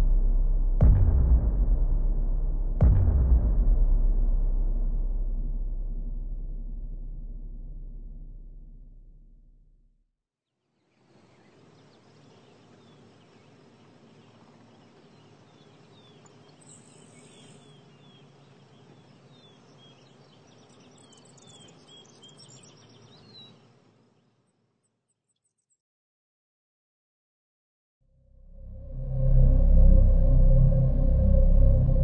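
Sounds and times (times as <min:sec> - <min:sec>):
background hiss: 0:10.8 - 0:24.4
small birds chirping: 0:10.8 - 0:25.8.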